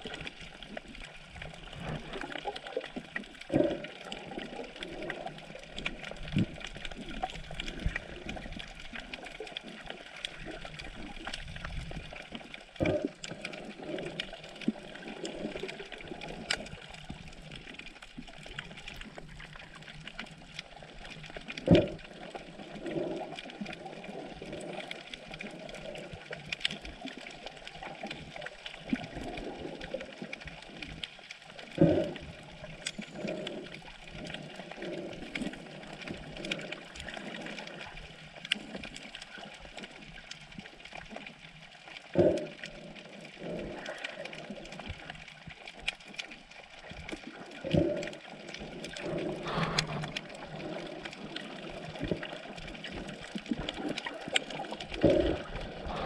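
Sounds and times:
faint clicks and crackles: 0.0s - 56.0s
underwater wash of noise: 46.5s - 56.0s.

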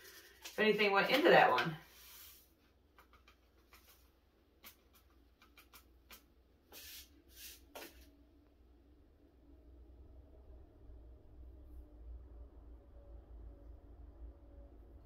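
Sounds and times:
faint rustles and light clicks: 0.0s - 7.0s
brushing rustles: 0.0s - 8.1s.

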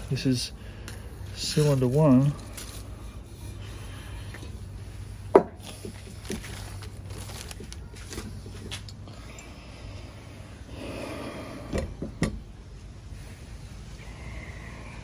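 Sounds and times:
steady low hum: 0.0s - 15.0s
rubber seal handling noises: 5.3s - 9.0s.

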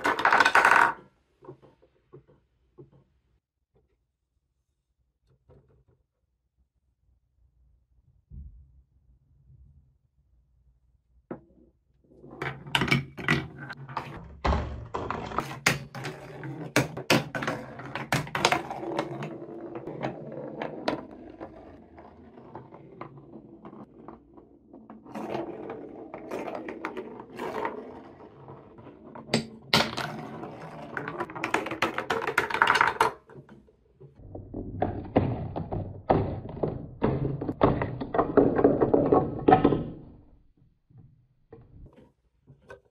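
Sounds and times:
wooden ball rolling on track: 0.0s - 3.1s, 12.1s - 40.3s
ball clacking against track pieces: 15.2s - 33.6s.

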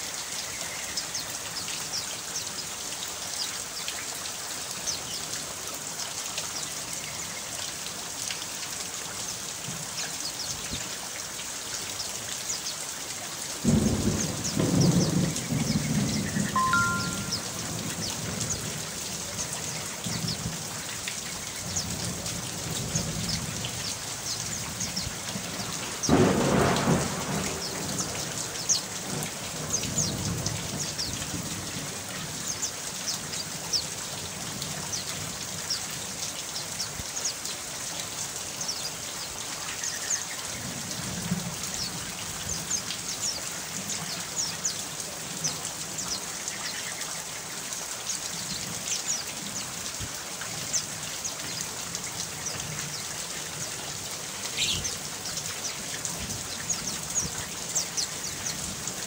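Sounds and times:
steady rain falling: 0.0s - 59.0s
thunder rumble: 25.9s - 28.3s.

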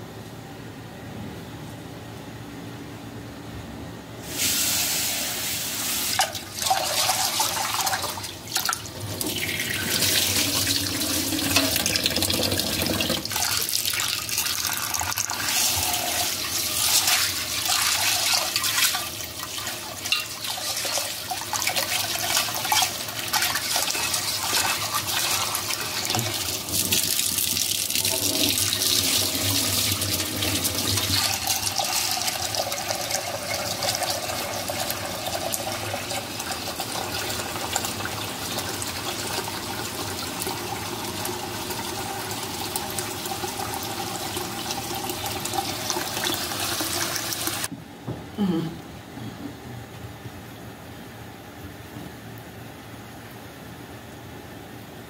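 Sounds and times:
tap water running into pot: 6.1s - 47.7s.

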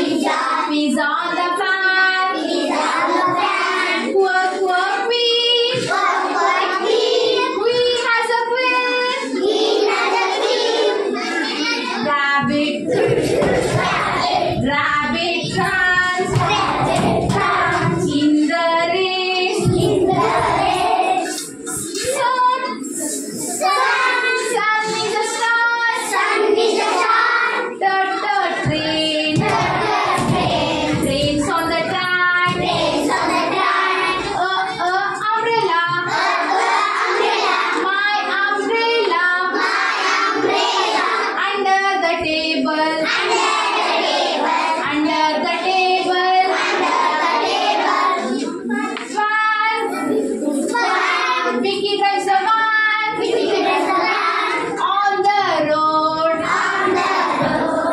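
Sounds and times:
children singing together: 0.0s - 57.9s
woman singing: 4.0s - 5.8s, 12.0s - 12.9s, 14.6s - 16.7s, 17.3s - 20.1s, 27.8s - 29.6s, 30.2s - 32.7s, 41.4s - 43.0s, 49.1s - 49.8s, 51.6s - 53.2s, 54.8s - 56.4s.

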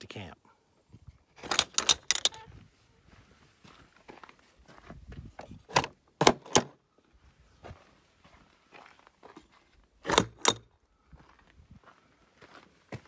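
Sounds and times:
sharp clicks and knocks: 1.4s - 2.4s, 5.7s - 6.7s, 10.1s - 10.6s
faint footsteps: 2.3s - 5.6s, 7.2s - 9.9s, 11.0s - 13.0s.

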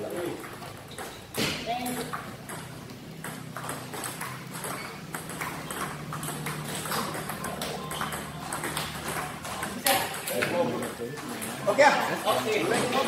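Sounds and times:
table tennis ball clicking: 1.9s - 11.6s.

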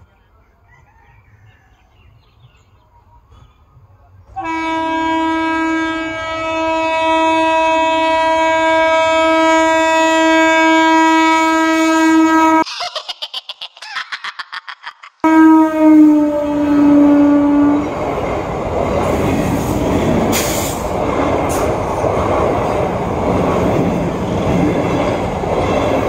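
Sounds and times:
train horn blast: 4.3s - 12.6s, 15.2s - 17.9s.

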